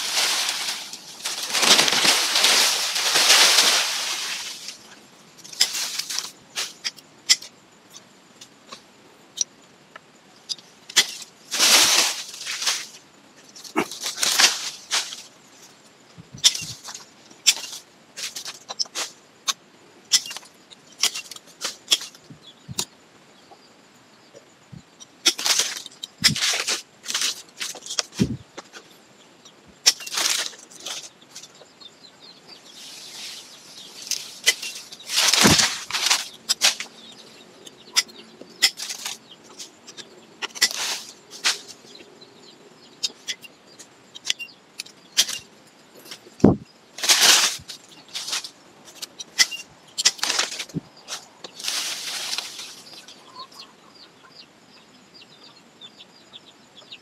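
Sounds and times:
twigs snapping: 0.0 - 4.8, 34.0 - 36.9
foliage rustling and scraping: 0.0 - 7.5, 10.5 - 22.8, 25.2 - 29.0, 29.8 - 31.6, 32.5 - 42.2, 44.2 - 53.6.

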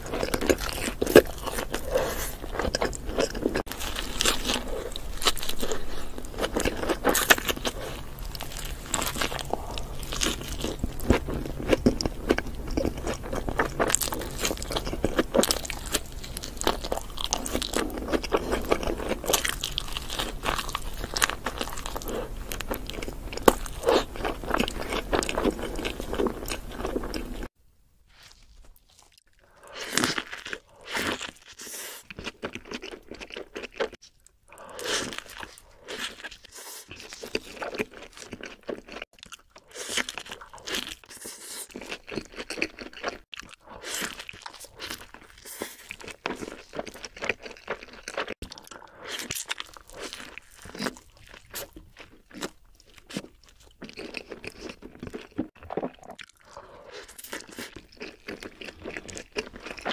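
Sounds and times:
crunchy bites and chewing: 0.0 - 27.5, 28.1 - 59.9
soft bites and chewing: 28.1 - 59.9.

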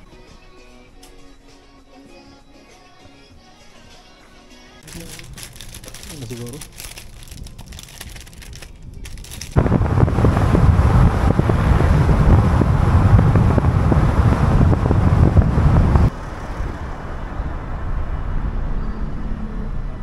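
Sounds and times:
road traffic rumble: 4.8 - 20.0
wind buffeting microphone: 5.5 - 20.0.

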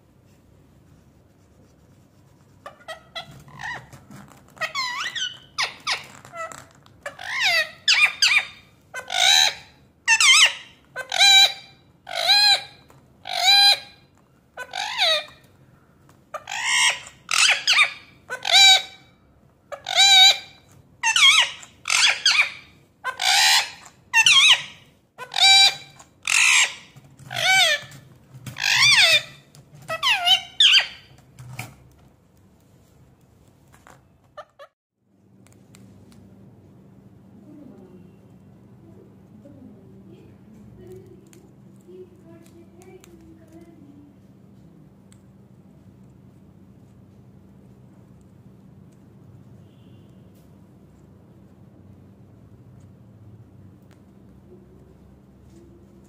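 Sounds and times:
parakeet screeching: 2.7 - 14.0, 14.6 - 15.4, 16.4 - 19.1, 19.7 - 31.2.

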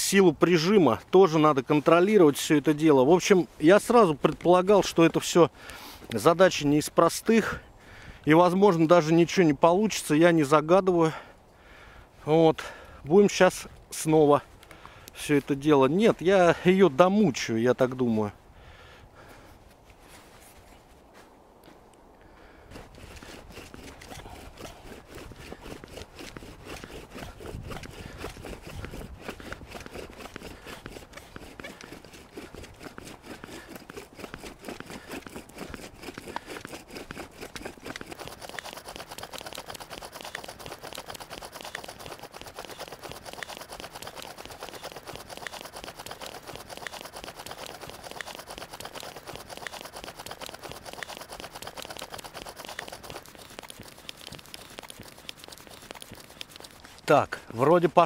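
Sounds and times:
bow drill grinding: 22.7 - 58.0.

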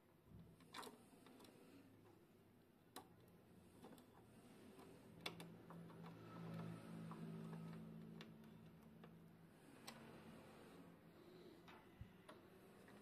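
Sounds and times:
faint plastic clicks: 2.8 - 10.2.

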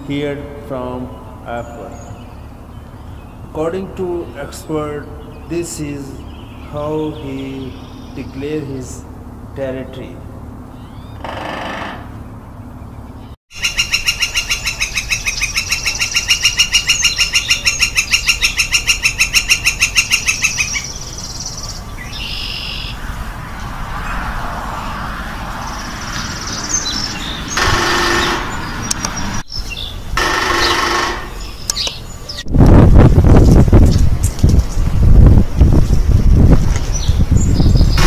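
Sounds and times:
woodpecker ringing call: 10.7 - 12.3, 13.5 - 21.4, 22.0 - 23.0, 26.4 - 32.1.

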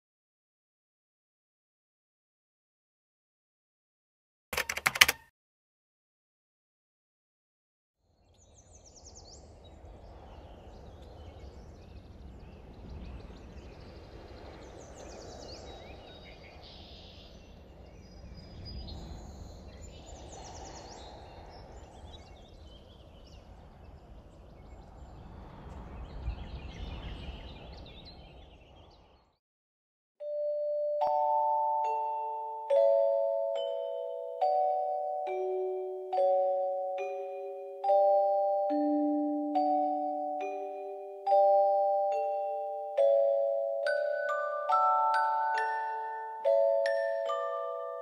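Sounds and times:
birds chirping: 8.2 - 29.4, 36.4 - 48.0
low rumble: 17.6 - 29.2
music with bell-like notes: 30.2 - 48.0.

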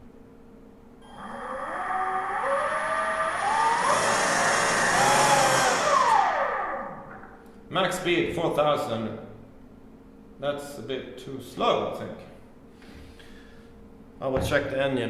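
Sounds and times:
electric motor whining: 1.0 - 7.1.

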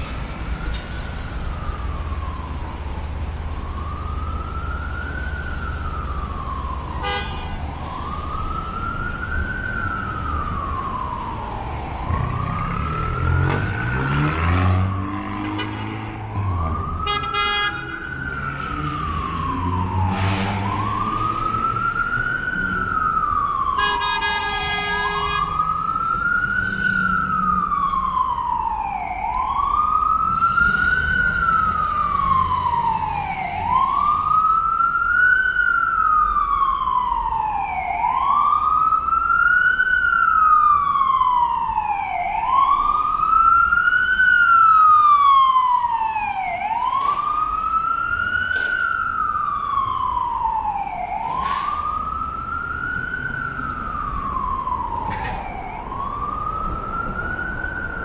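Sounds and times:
emergency siren wailing: 0.0 - 58.0
traffic noise: 0.0 - 58.0
vehicle horn: 7.0 - 7.5, 17.0 - 18.0, 23.8 - 25.5.

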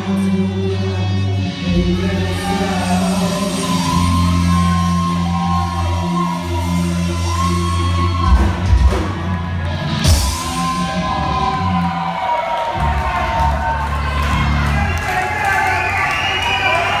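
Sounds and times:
person singing: 0.0 - 9.1
held bass notes: 0.0 - 15.0
rock band playing: 0.0 - 17.0
drum hits: 8.3 - 9.4.

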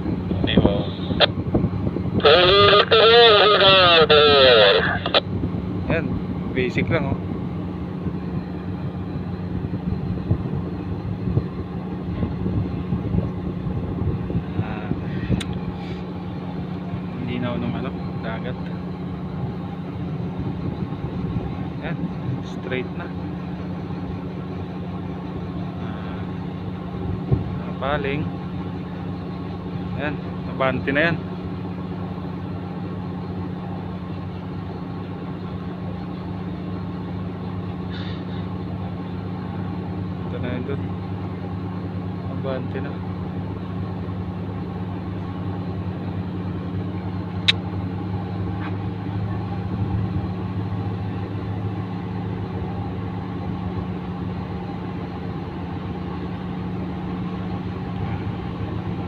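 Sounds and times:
ship diesel engines humming: 0.0 - 59.0
sharp click: 47.4 - 47.7.

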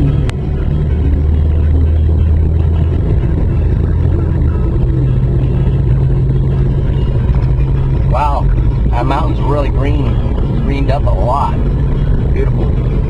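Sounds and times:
car engine and road drone: 0.0 - 13.0.

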